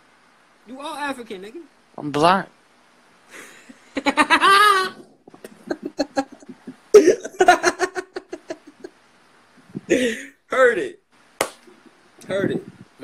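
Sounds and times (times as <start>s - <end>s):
person laughing: 3.3s - 8.9s.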